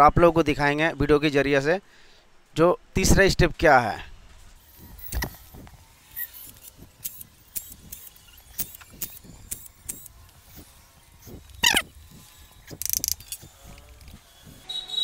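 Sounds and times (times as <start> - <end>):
brief squeak: 11.6 - 11.9.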